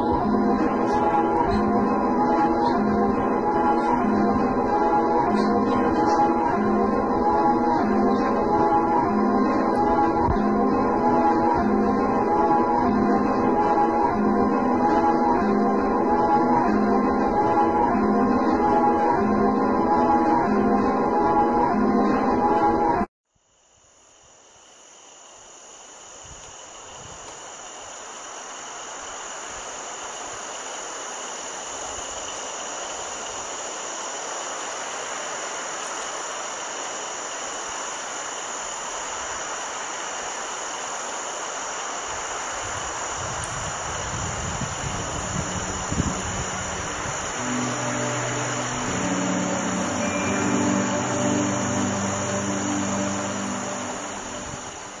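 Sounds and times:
high-pitched whine: 0.0s - 23.1s, 24.8s - 55.0s
music: 0.0s - 23.1s, 45.2s - 55.0s
steady hiss: 0.0s - 55.0s.

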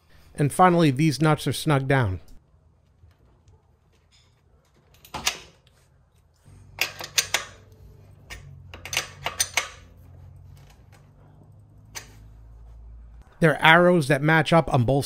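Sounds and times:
wrench clicking on axle nuts: 6.7s - 9.9s.

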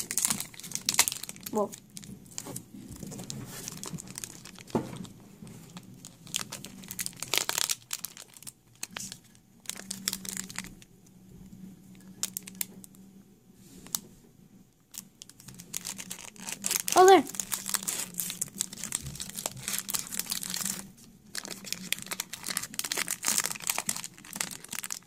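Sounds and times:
foil pack tearing: 0.0s - 2.4s, 3.5s - 4.7s, 5.8s - 9.1s, 9.7s - 10.8s, 14.9s - 25.0s
foil pack crinkling: 0.0s - 10.9s, 11.9s - 12.7s, 14.9s - 25.0s.

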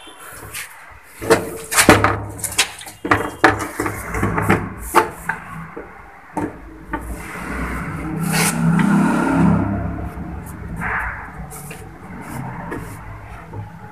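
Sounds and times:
rubbing: 0.4s - 13.9s
steady low hum: 3.8s - 13.9s.

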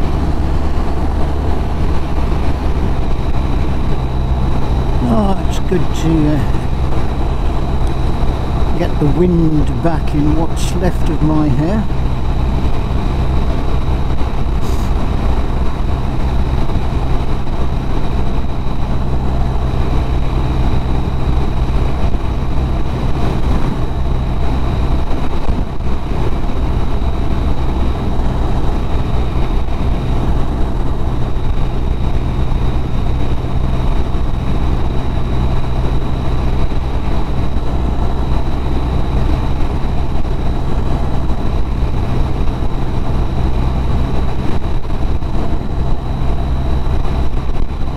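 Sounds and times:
thin high whine: 0.0s - 25.5s
motorcycle engine drone: 0.0s - 47.9s
wind and road noise: 0.0s - 47.9s.

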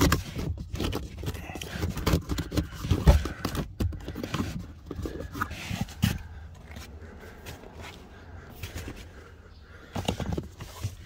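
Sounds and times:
plastic clicks and scraping: 0.0s - 6.9s, 9.8s - 11.0s.

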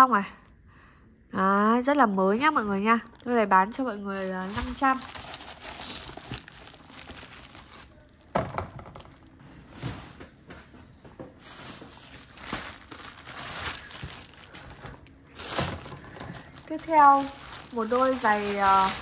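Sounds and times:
paper crinkling: 2.4s - 8.3s, 11.4s - 19.0s.

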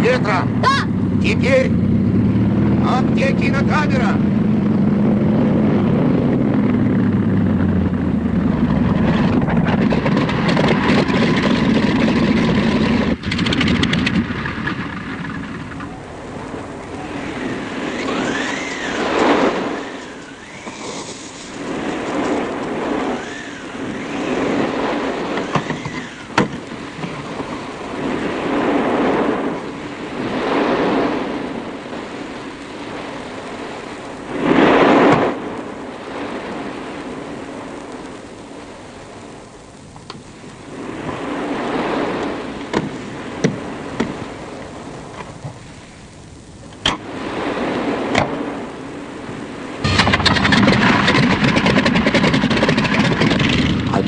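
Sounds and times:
propeller engine drone: 0.0s - 47.2s, 47.8s - 54.0s
rushing whistling noise: 15.3s - 27.0s, 49.7s - 53.1s.

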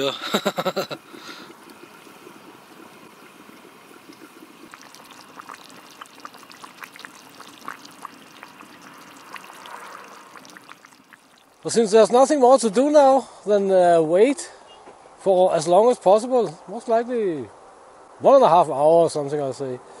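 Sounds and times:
stew bubbling in pot: 0.0s - 12.2s.

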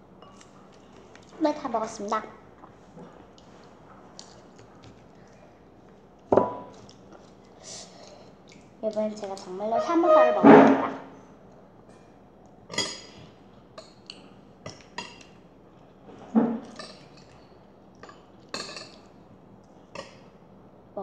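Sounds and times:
dishes clinking on a table: 6.3s - 6.7s, 11.9s - 14.0s, 16.3s - 17.4s, 18.0s - 19.0s.

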